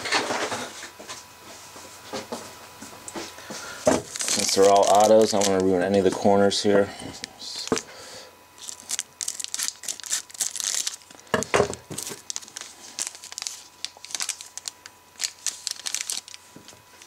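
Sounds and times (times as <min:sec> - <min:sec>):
foil wrapper crinkling: 0:04.0 - 0:06.1, 0:08.6 - 0:17.0.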